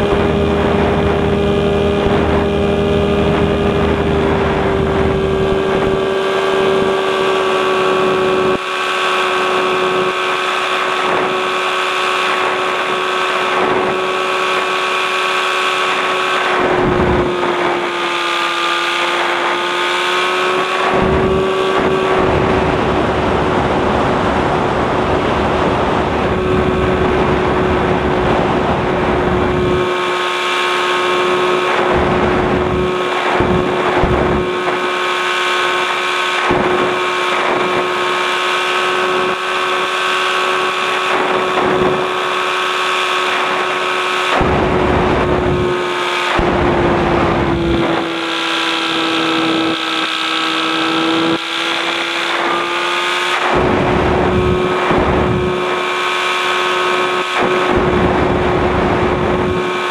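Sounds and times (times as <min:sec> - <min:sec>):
light aircraft engine and propeller: 0:00.0 - 0:59.9
wind buffeting microphone: 0:21.0 - 0:29.9, 0:31.7 - 0:34.8, 0:44.4 - 0:48.2, 0:53.6 - 0:55.8.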